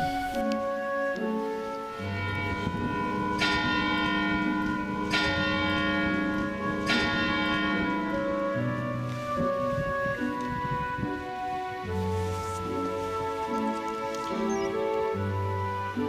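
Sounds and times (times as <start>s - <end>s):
church bell tolling: 1.9s - 11.2s.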